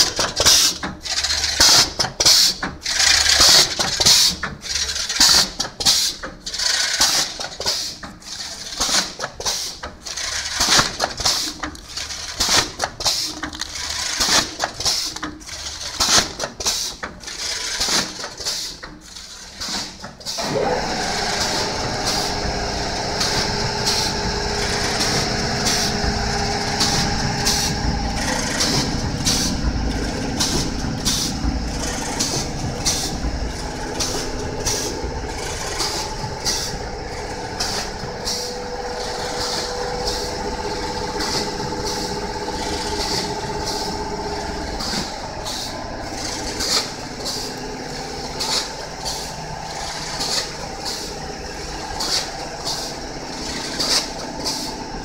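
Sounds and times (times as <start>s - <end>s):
packing machine clacking: 0.0s - 55.0s
mechanical hum with held tones: 20.4s - 55.0s.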